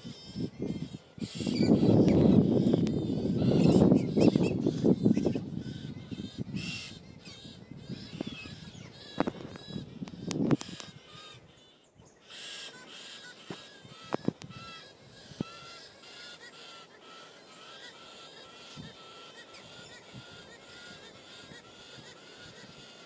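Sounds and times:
birds calling: 0.0 - 23.0
high bird chatter: 0.0 - 23.0.

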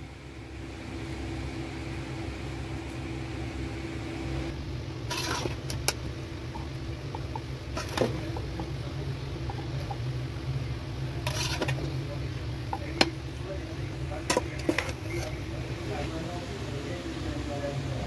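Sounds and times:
steady mechanical hum: 0.0 - 18.0
metal spoon scraping a pot: 5.0 - 6.0, 7.2 - 8.5, 11.2 - 12.0, 14.2 - 15.4.

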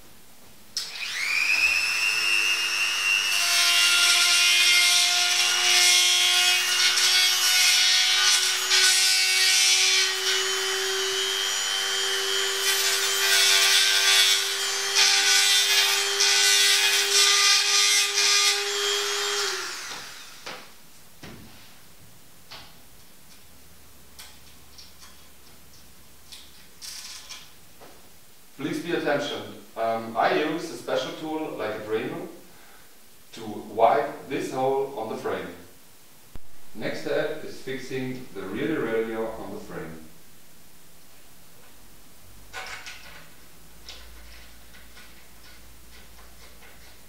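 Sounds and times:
rotary tool whining: 0.8 - 3.5.

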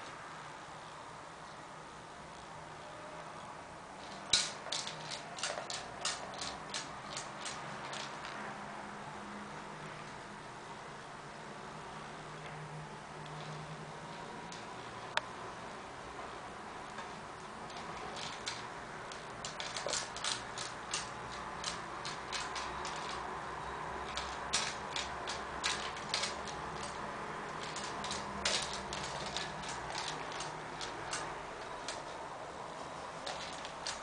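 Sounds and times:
metal spring toy clicking: 4.0 - 8.4, 17.7 - 23.3, 24.0 - 32.1, 33.3 - 34.0.

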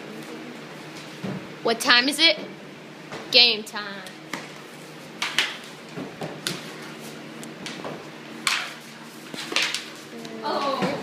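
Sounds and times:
hockey sticks and ball clacking: 8.4 - 10.0.

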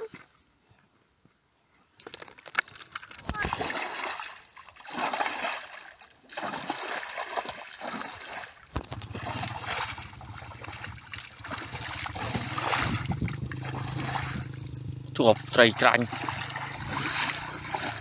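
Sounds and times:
water splashing and sloshing: 2.0 - 18.0
steady low hum: 8.8 - 18.0.

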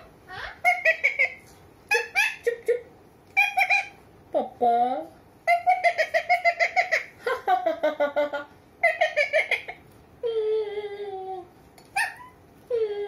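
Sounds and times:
parakeet chattering: 0.0 - 4.0, 5.4 - 7.2, 8.8 - 9.8.

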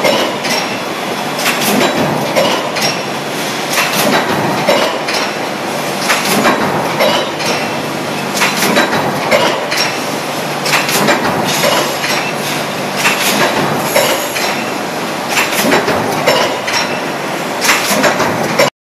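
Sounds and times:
steady machine noise: 0.0 - 18.7
metal clanks: 10.7 - 12.3.

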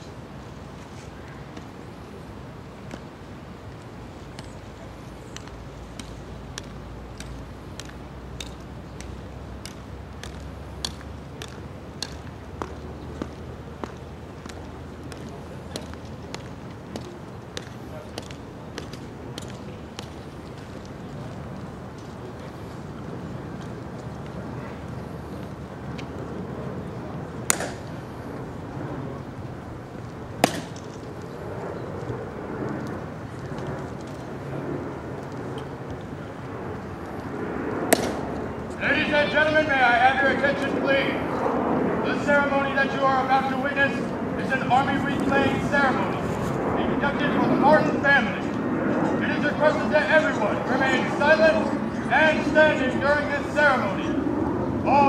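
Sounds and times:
low steady outdoor hum: 0.0 - 55.0
crowd murmur: 4.4 - 55.0
dress shoes clicking on stone: 5.3 - 22.5.

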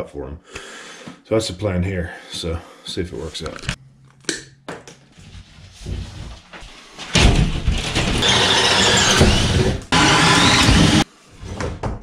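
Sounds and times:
cordless drill boring into wood: 8.2 - 11.0.

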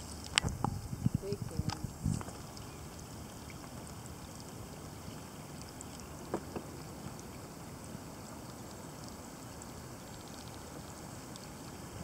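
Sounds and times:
wind rumble on microphone: 0.0 - 4.0
raindrops plinking on water: 0.0 - 12.0.

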